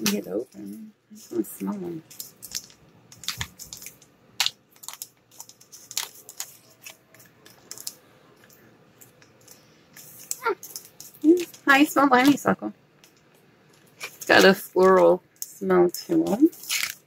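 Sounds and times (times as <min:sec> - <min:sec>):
packaging crinkling: 0:02.0 - 0:12.4, 0:16.2 - 0:17.0.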